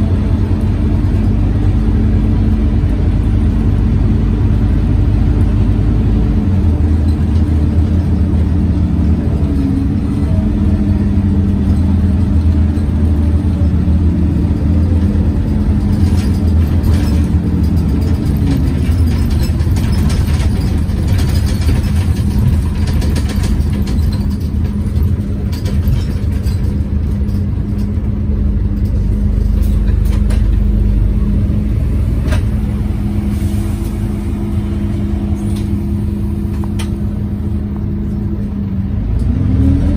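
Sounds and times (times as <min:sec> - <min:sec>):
bus fan and drivetrain drone: 0:00.0 - 0:39.9
road noise: 0:00.0 - 0:39.9
short rattles: 0:14.9 - 0:31.3.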